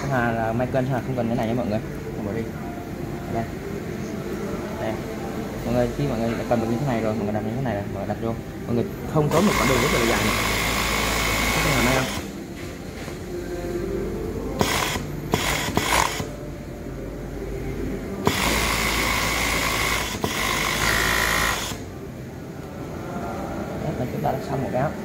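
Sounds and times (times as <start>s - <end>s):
overlock sewing machine stitching: 9.3s - 12.3s, 14.6s - 16.3s, 18.3s - 21.8s.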